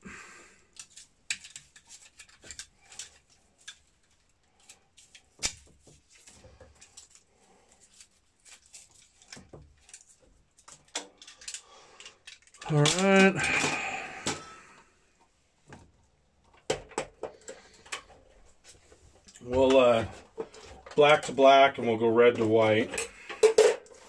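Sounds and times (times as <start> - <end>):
hand tools snipping cable: 8.4 - 13.8.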